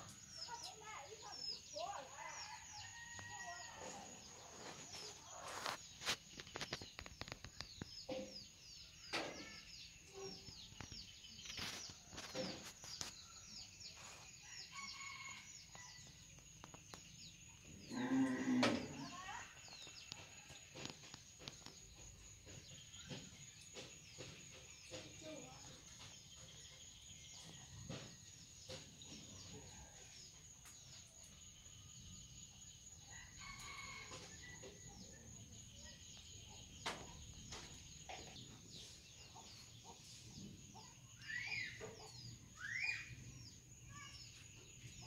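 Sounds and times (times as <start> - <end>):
small birds chirping: 0.0 - 45.0.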